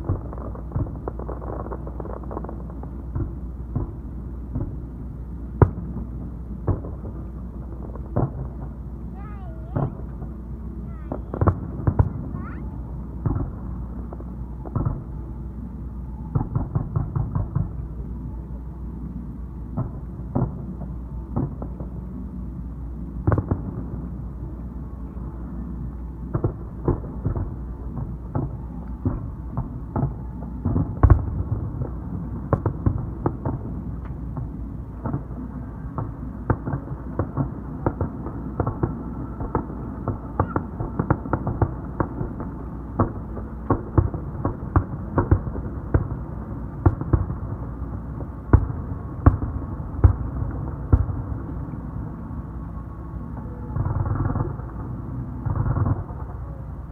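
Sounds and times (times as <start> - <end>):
fireworks bangs and pops: 0.0 - 4.8, 5.6 - 10.3, 11.0 - 12.6, 13.2 - 15.1, 23.2 - 23.9, 26.3 - 51.2.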